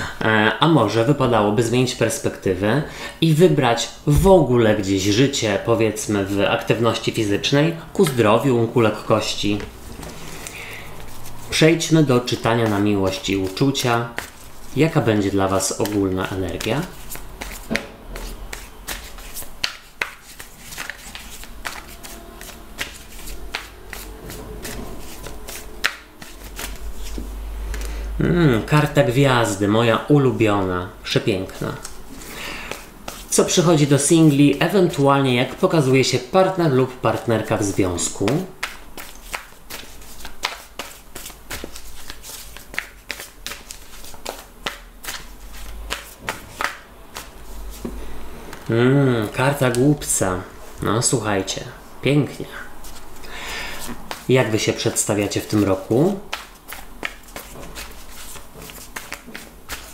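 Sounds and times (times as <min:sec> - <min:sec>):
cards shuffling with sharp snaps: 0:12.3 - 0:14.8, 0:15.5 - 0:28.0, 0:31.4 - 0:33.3, 0:38.2 - 0:48.6, 0:55.5 - 0:59.9.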